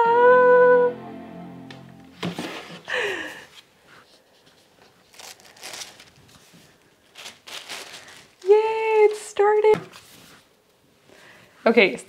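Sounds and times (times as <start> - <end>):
high-pitched tone: 0.0 - 2.3
paper sheet crinkling: 4.0 - 10.4.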